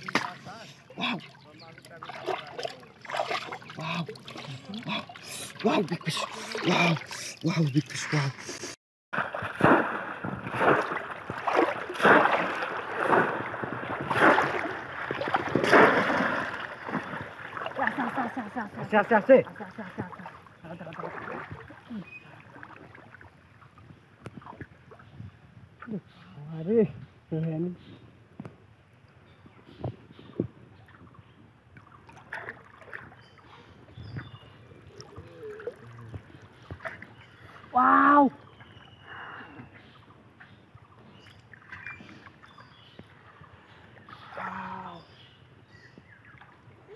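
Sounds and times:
river water splashing: 0.0 - 23.8, 31.8 - 39.0, 40.7 - 45.3, 46.0 - 46.9.

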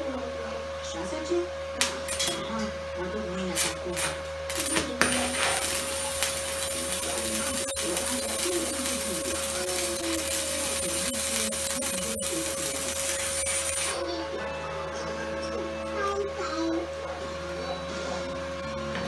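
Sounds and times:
welding arc crackling hiss: 3.5 - 14.0.

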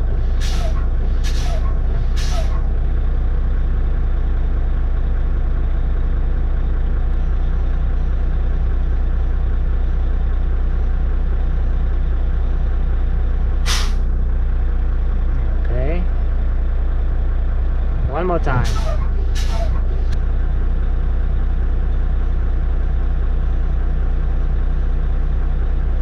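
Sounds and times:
diesel engine idling: 0.0 - 26.0
air brake hiss: 0.4 - 2.6, 13.6 - 14.0, 18.6 - 19.8.

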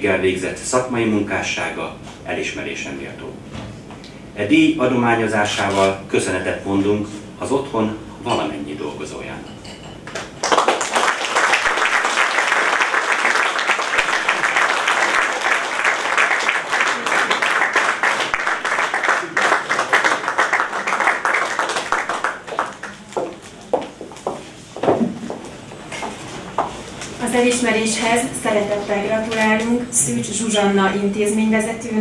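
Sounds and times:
audience applauding: 10.1 - 24.2.

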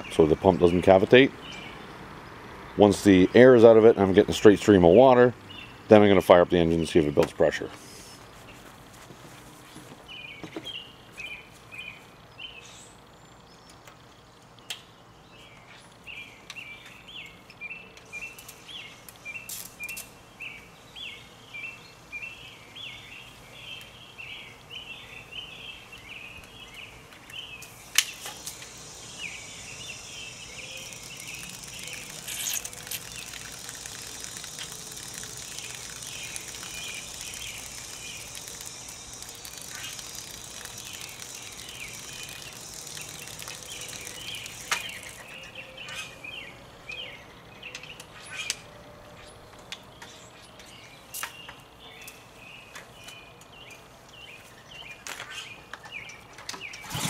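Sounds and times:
songbird singing: 0.0 - 8.7, 9.7 - 57.0
water hissing from spray wand: 27.6 - 45.4
sharp click: 30.8 - 45.3.

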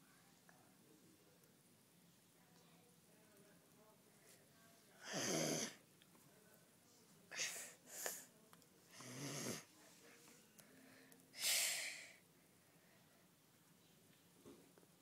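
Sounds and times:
person hissing breaths: 10.8 - 12.2.

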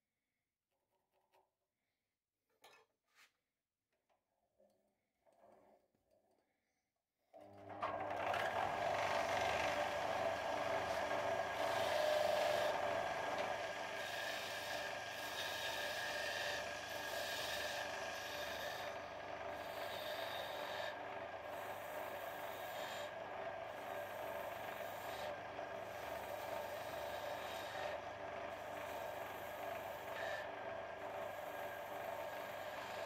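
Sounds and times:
wood lathe humming: 7.7 - 33.0
chisel scraping spinning wood: 7.8 - 33.0.

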